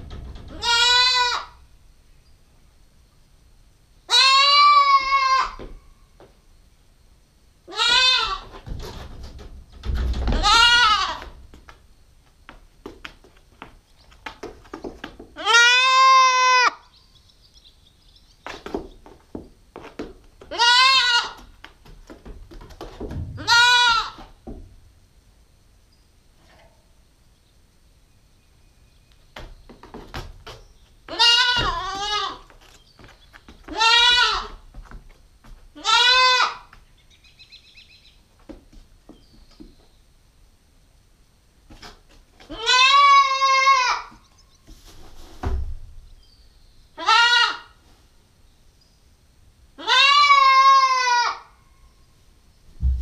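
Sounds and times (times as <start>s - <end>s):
goat kid bleating: 0.5s - 1.6s, 4.1s - 5.9s, 7.7s - 8.6s, 10.4s - 11.3s, 15.4s - 16.8s, 20.4s - 21.6s, 23.4s - 24.3s, 31.1s - 32.7s, 33.6s - 34.6s, 35.8s - 36.8s, 42.5s - 44.2s, 47.0s - 47.8s, 49.8s - 51.6s.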